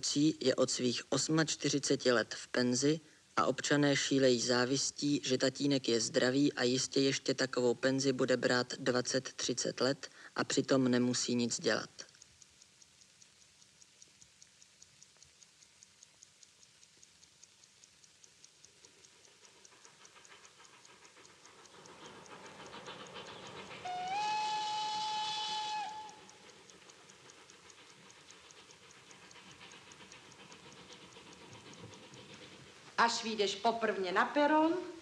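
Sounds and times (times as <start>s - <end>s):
pocket watch ticking: 0.0s - 33.6s
steam locomotive rushing: 19.9s - 33.6s
steam whistle: 23.6s - 26.4s.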